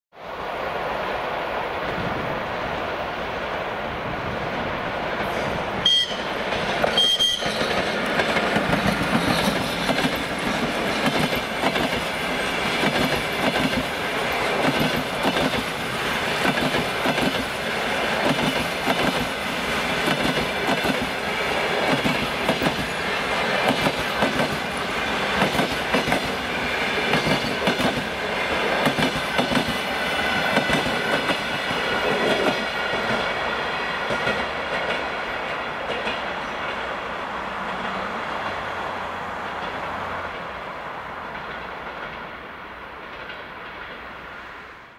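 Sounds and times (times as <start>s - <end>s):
wheels clickety-clack over rail joints: 4.2s - 44.4s
high ringing from wheels and rails: 5.8s - 8.0s.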